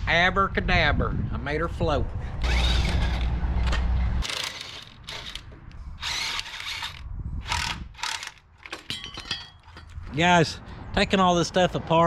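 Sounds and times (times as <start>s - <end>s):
impact wrench bursts: 2.4s - 3.3s, 4.2s - 8.4s.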